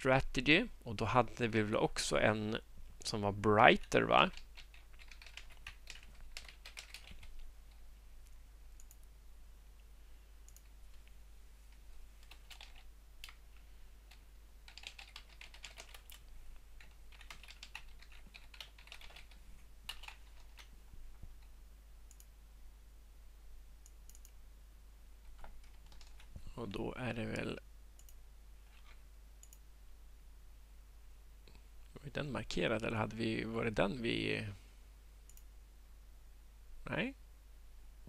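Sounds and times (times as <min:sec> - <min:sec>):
computer keyboard typing: 0:03.8 - 0:07.8, 0:12.2 - 0:13.4, 0:14.1 - 0:16.2, 0:16.8 - 0:20.7, 0:25.3 - 0:26.3.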